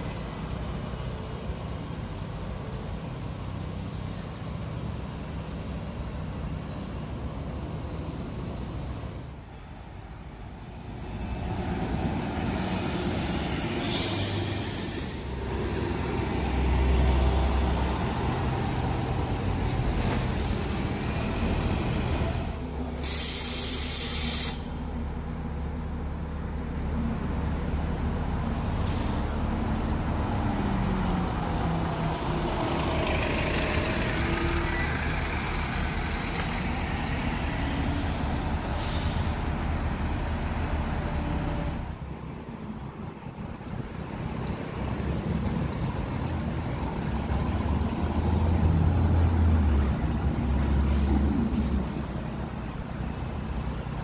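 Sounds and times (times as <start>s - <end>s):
bus accelerating whine: 0.0s - 54.0s
low bus engine rumble: 0.0s - 54.0s
air-brake hisses: 10.6s - 15.4s, 23.0s - 24.8s, 38.7s - 39.4s.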